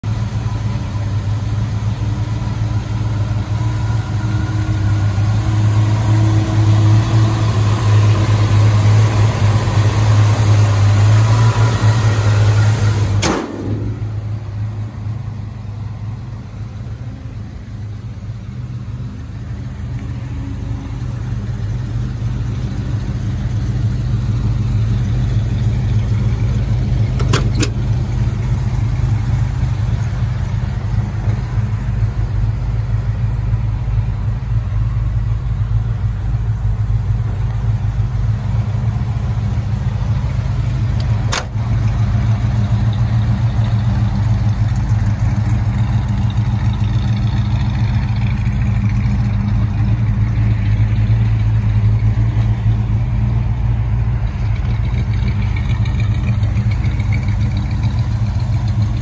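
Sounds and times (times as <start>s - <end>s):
pickup engine idling: 0.0s - 59.0s
sharp knock: 13.2s - 14.2s.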